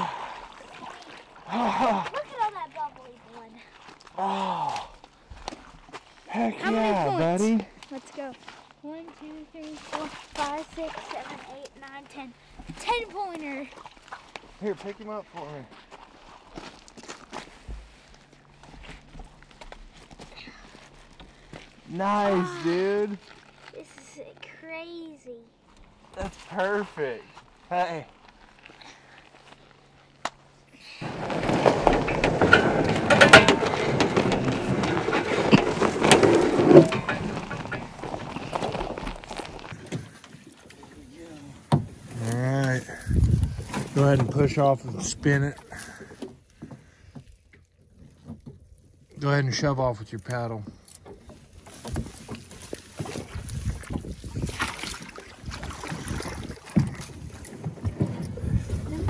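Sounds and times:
paddle splashing in water: 0:00.0 - 0:04.2, 0:09.6 - 0:11.8, 0:30.9 - 0:42.2, 0:51.1 - 0:59.0
loud rustling and scraping: 0:30.8 - 0:40.2
wind noise on microphone: 0:42.9 - 0:43.9, 0:53.2 - 0:59.0.

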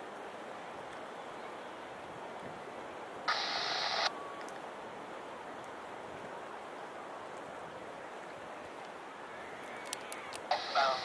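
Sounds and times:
surf: 0:00.0 - 0:11.0
scanner radio static: 0:03.3 - 0:04.1, 0:10.5 - 0:11.0.

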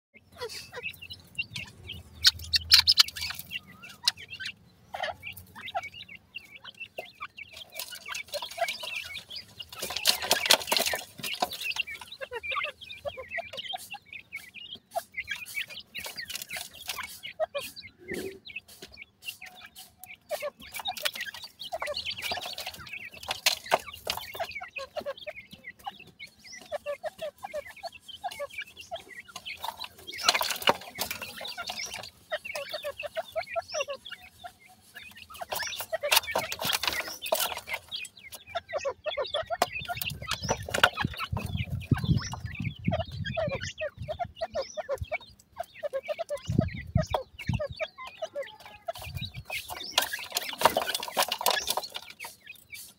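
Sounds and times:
chicks clucking and peeping: 0:00.1 - 0:52.9
scratchy rustling in soil: 0:48.5 - 0:52.9.

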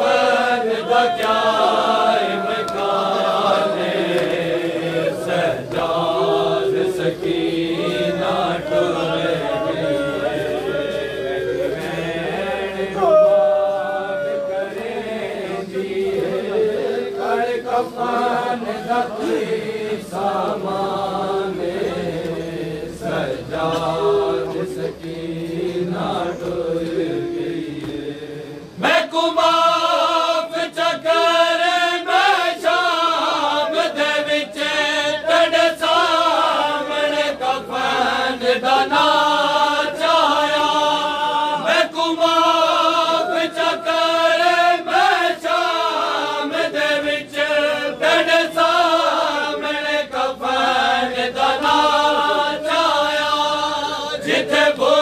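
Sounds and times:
men chanting a lament: 0:00.0 - 0:55.0.

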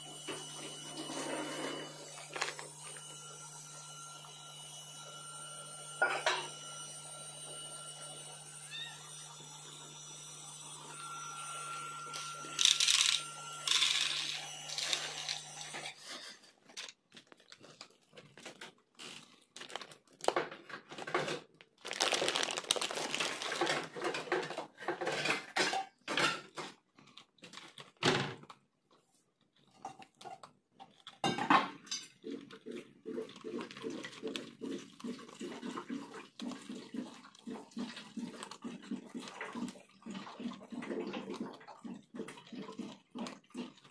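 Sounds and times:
cat crunching dry kibble: 0:16.6 - 0:24.1.

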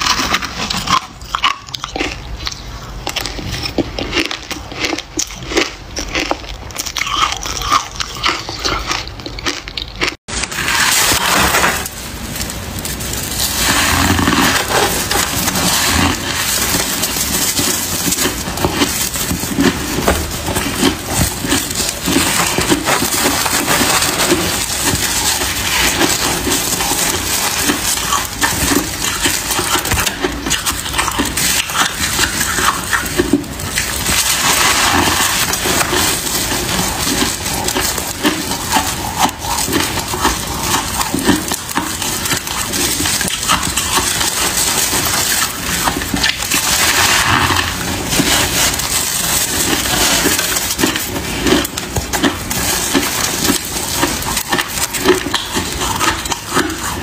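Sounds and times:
frost crunching and crackling: 0:00.0 - 0:57.0.

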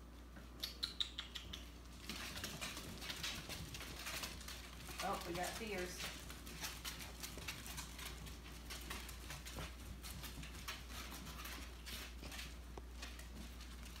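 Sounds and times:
puppy claws pattering on tile: 0:00.3 - 0:14.0.

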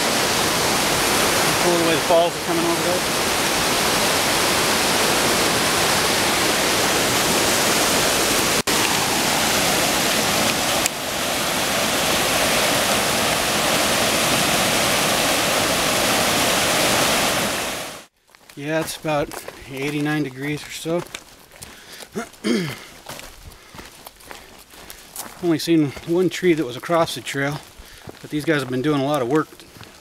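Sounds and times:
creek rushing over rocks: 0:00.0 - 0:18.1.

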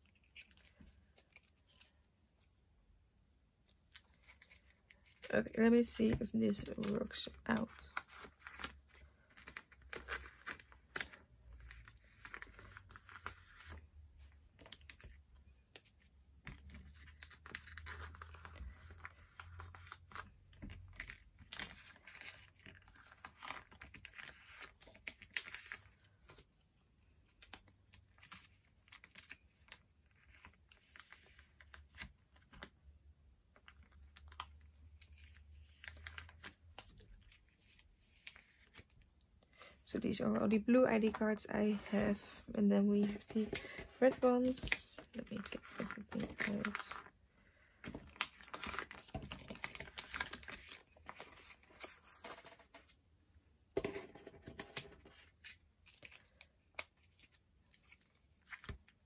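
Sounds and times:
cards rustling and crinkling: 0:00.0 - 0:02.6, 0:03.6 - 0:39.1, 0:40.1 - 0:53.1, 0:53.8 - 0:59.0.

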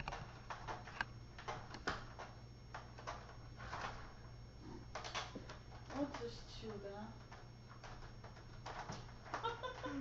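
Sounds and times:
screen door rattling: 0:07.8 - 0:09.9.

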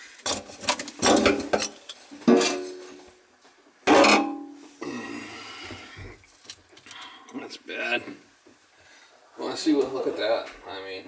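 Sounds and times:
sharp metal clangs: 0:03.9 - 0:04.6.

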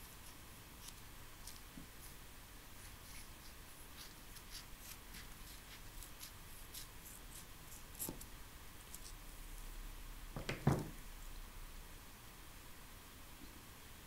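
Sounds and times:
scissors snipping paper: 0:00.2 - 0:01.8, 0:03.1 - 0:09.2
soft knock: 0:10.4 - 0:11.0.

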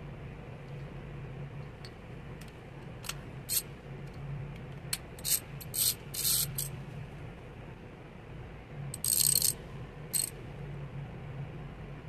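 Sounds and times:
steady low hum: 0:00.0 - 0:12.0
metallic ratchet clicks and clinks: 0:05.2 - 0:06.7, 0:09.0 - 0:09.6.

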